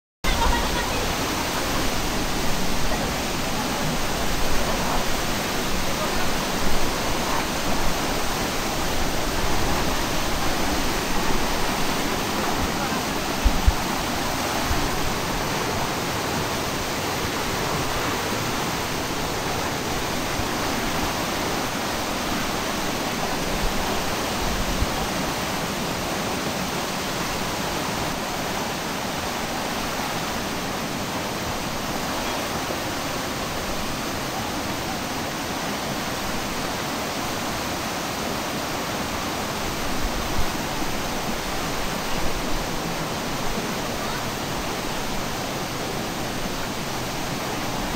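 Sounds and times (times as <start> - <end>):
river rushing: 0.2 - 47.9.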